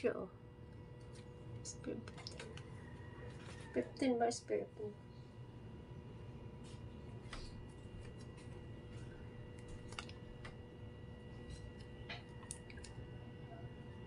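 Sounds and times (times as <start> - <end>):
faint steady hum: 0.0 - 14.0
plastic sachet crinkling: 9.5 - 10.5.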